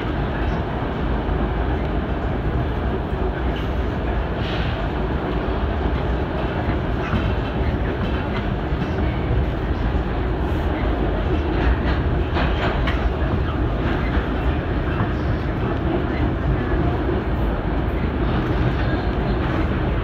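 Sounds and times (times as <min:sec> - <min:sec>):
train rumbling on rails: 0:00.0 - 0:20.0
wheels clicking over rail joints: 0:11.0 - 0:16.9.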